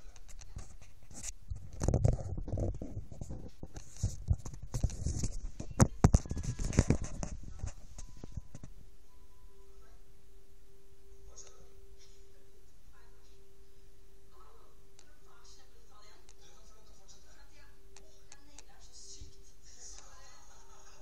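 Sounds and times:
faint steady tone: 7.6s - 21.0s.

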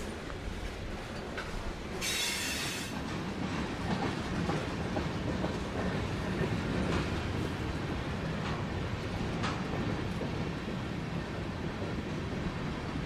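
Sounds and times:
steel wheels rumbling on rail: 0.0s - 13.0s
brief hiss: 2.0s - 3.0s.

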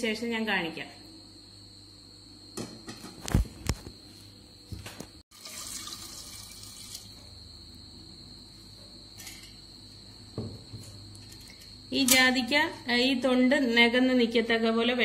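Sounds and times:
water pouring and splashing: 5.3s - 7.1s.

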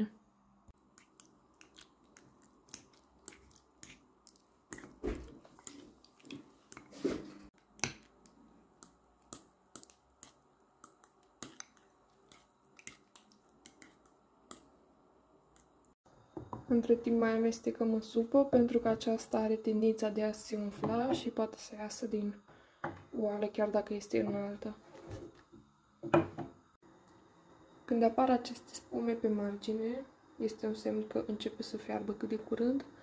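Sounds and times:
wet squelches of mixture: 0.8s - 16.0s.

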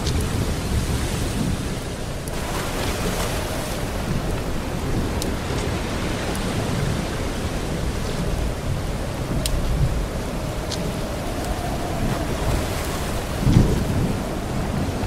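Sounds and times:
rushing water: 0.0s - 15.0s
deep rumble: 3.8s - 15.0s
faint ticks: 9.3s - 11.7s.

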